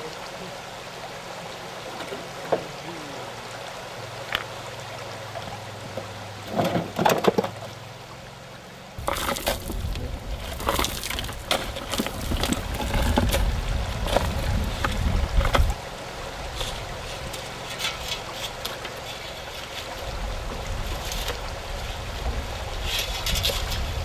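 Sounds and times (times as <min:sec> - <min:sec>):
sharp knocks and clatters: 0:06.5 - 0:07.7
shovels digging in earth: 0:09.0 - 0:13.4
wind rumble on microphone: 0:09.0 - 0:18.2, 0:19.8 - 0:24.0.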